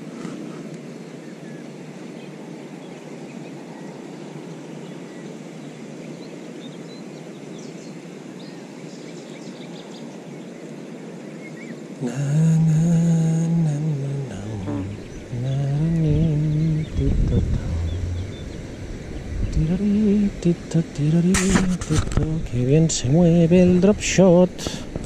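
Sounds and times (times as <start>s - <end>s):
river water rushing: 0.0s - 25.0s
loud low humming tone: 12.0s - 24.6s
wind on microphone: 13.4s - 25.0s.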